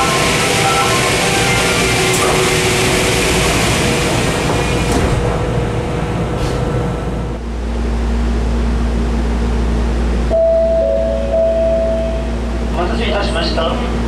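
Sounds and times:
low hum inside train car: 0:00.0 - 0:14.0
train rumbling: 0:00.0 - 0:14.0
sliding train doors knocking shut: 0:04.3 - 0:05.6.

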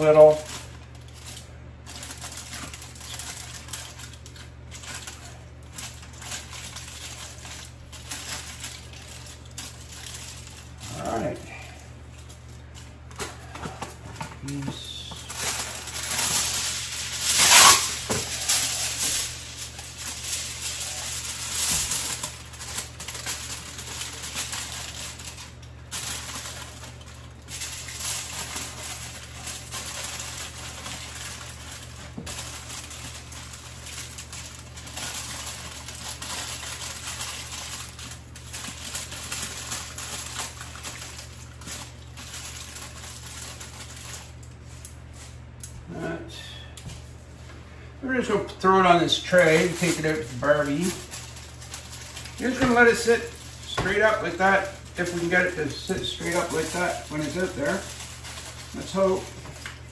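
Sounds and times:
aluminium foil crinkling: 0:00.0 - 0:59.9.

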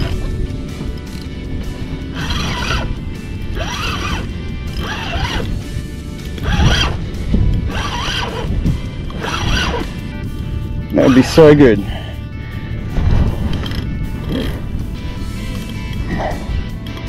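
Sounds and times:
fishing reel whirring: 0:00.9 - 0:10.1.

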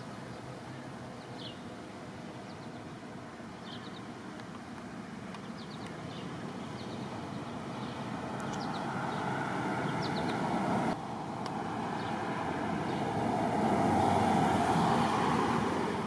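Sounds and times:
passing car: 0:06.4 - 0:16.0.

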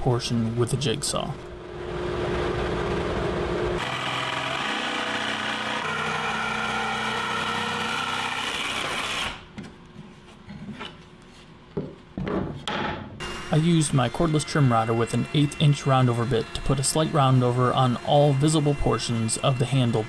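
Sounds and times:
steady machine hum: 0:01.4 - 0:08.4
jigsaw cutting wood: 0:03.8 - 0:09.4, 0:13.2 - 0:20.0.

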